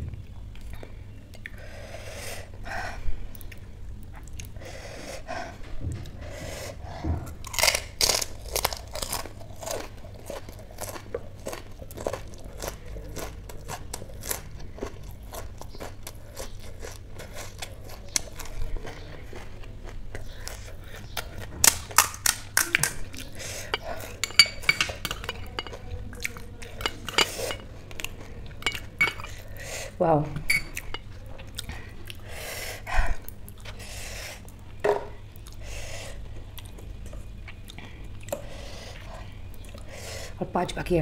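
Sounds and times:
crisp food crunching and chewing: 0:07.4 - 0:29.6.

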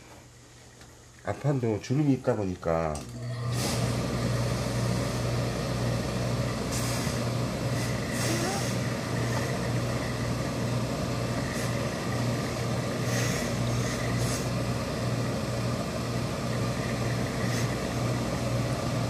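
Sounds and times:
machine hum: 0:00.0 - 0:19.0
steam iron hissing: 0:06.6 - 0:10.2, 0:11.3 - 0:14.7, 0:16.4 - 0:18.4.

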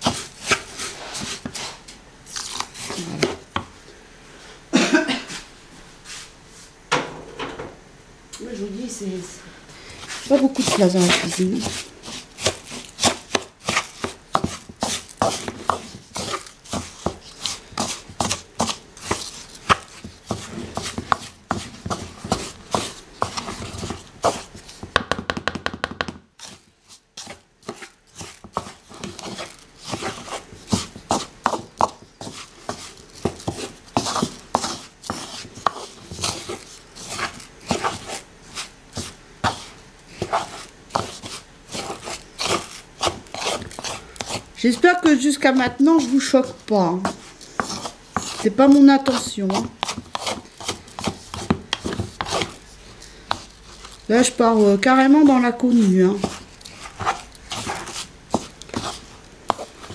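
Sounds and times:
wooden spoon scraping wooden bowl: 0:00.0 - 0:03.5, 0:09.9 - 0:24.9, 0:26.4 - 0:59.9.

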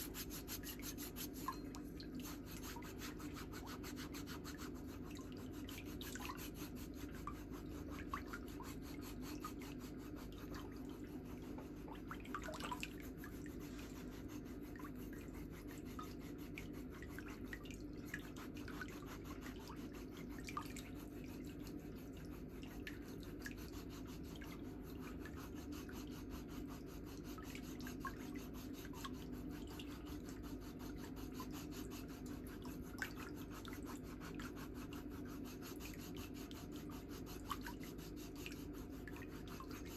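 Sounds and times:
foot file rasping skin: 0:00.0 - 0:01.6, 0:02.2 - 0:10.6, 0:21.8 - 0:39.9
steady low hum: 0:00.0 - 0:39.9.

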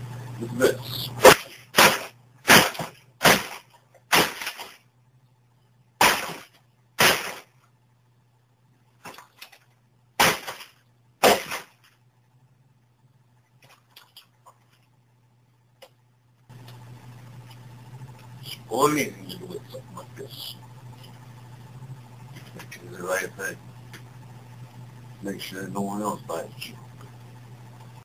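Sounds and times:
hammer smashing junk: 0:01.2 - 0:04.8, 0:06.0 - 0:07.5, 0:10.2 - 0:11.8.

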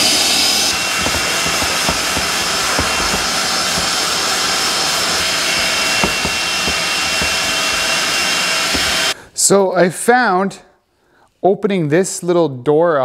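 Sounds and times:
shop vacuum whining: 0:00.0 - 0:09.2
sanding block rubbing wood: 0:00.6 - 0:09.2
light knocks: 0:00.7 - 0:09.2.

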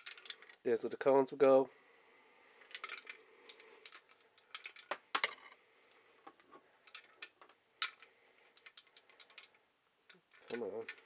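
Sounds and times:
small hard objects clicking: 0:00.0 - 0:00.6, 0:02.6 - 0:05.3, 0:06.8 - 0:11.0.

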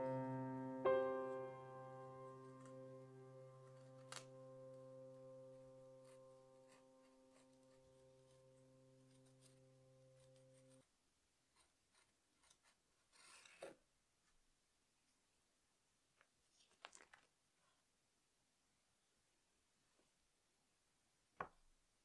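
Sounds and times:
background music note: 0:00.0 - 0:10.8
needle tool scratching clay: 0:03.6 - 0:04.4, 0:05.6 - 0:10.9, 0:11.5 - 0:13.8.

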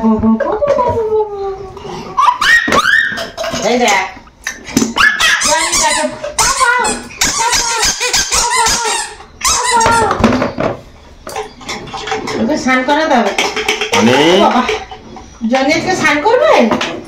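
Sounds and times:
toddler squealing and shrieking: 0:02.2 - 0:03.2.

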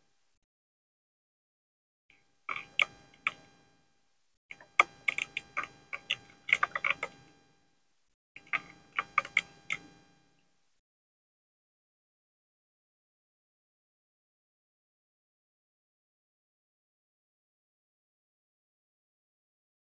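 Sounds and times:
sharp ringing clicks: 0:04.5 - 0:07.5, 0:08.4 - 0:10.4.

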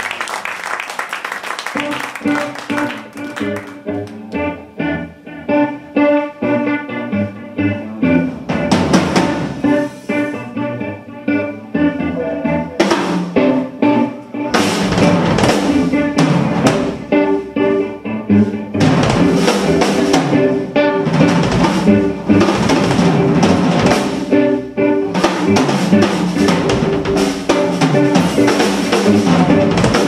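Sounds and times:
rock band playing: 0:00.0 - 0:30.0
bass drum and snare hits: 0:14.6 - 0:17.0, 0:18.8 - 0:19.8.

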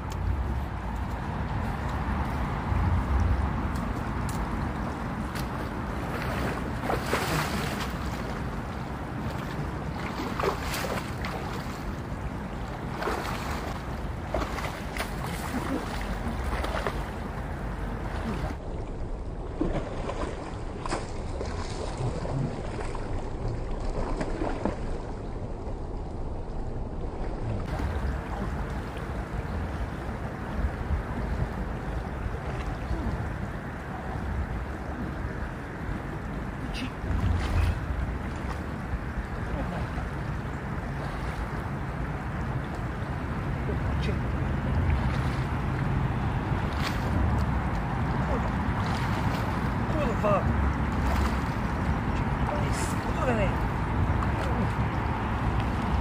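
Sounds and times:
legs splashing through water: 0:00.0 - 0:25.4, 0:27.2 - 0:56.0
wind on microphone: 0:00.0 - 0:56.0
river current rushing: 0:01.5 - 0:18.7.

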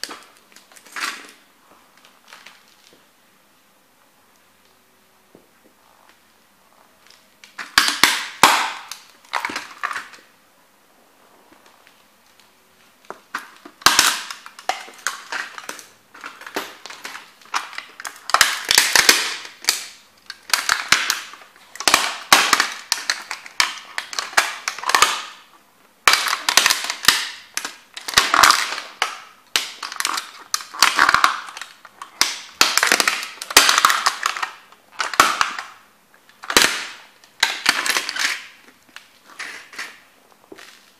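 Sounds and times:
plastic crunching under boots: 0:07.0 - 0:10.3, 0:11.5 - 0:40.9.

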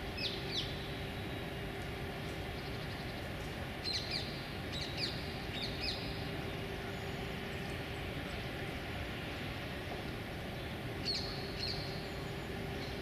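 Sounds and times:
distant city traffic rumble: 0:00.0 - 0:13.0.

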